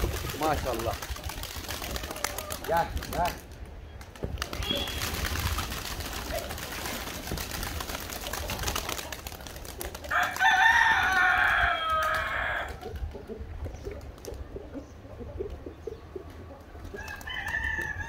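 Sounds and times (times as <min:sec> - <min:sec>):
pigeons flapping wings: 0:00.0 - 0:13.2, 0:13.8 - 0:14.4, 0:17.0 - 0:17.9
rooster crowing: 0:10.1 - 0:12.8, 0:17.0 - 0:18.0.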